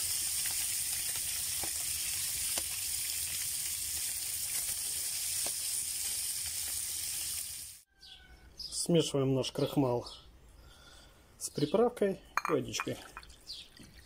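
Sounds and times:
chicken sizzling in frying pan: 0:00.0 - 0:07.9.

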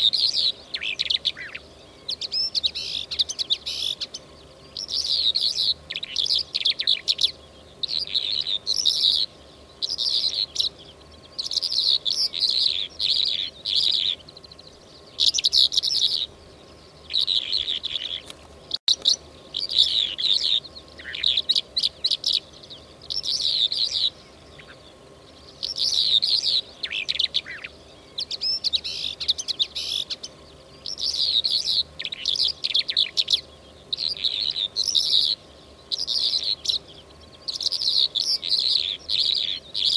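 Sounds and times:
faint steady hum: 0:00.0 - 0:39.9
lark chirps and trills: 0:00.0 - 0:39.9.

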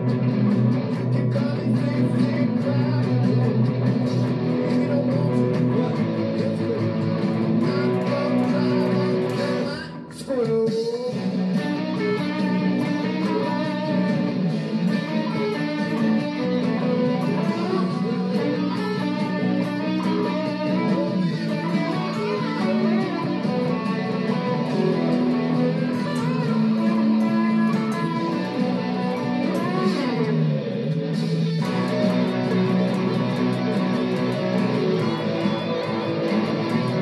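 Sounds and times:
electric guitar in rock song: 0:00.0 - 0:37.0
bass line: 0:12.5 - 0:37.0.

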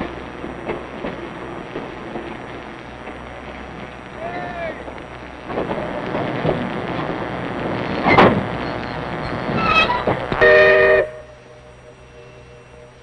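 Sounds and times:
rough noisy train sound: 0:00.0 - 0:13.0
steam locomotive whistle: 0:09.2 - 0:13.0.

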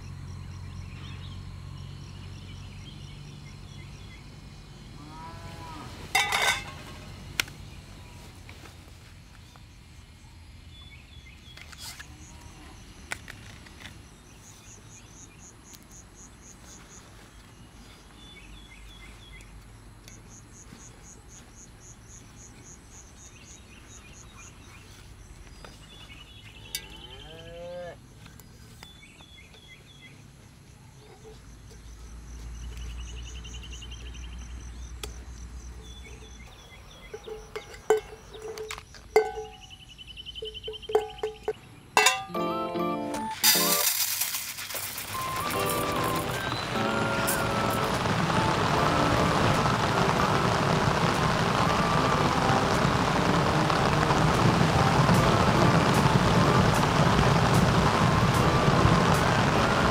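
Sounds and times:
insect chirping in pulsed trains: 0:00.0 - 0:42.0, 0:45.0 - 0:59.9
low rumble: 0:45.2 - 0:59.9.

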